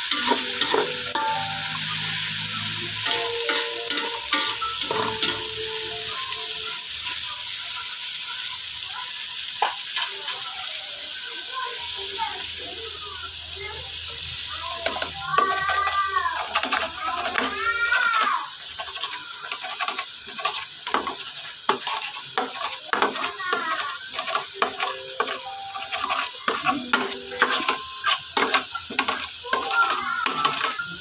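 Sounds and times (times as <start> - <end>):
metal spatula scraping a pan: 0.0 - 6.1, 14.8 - 31.0
egg sizzling in oil: 0.0 - 31.0.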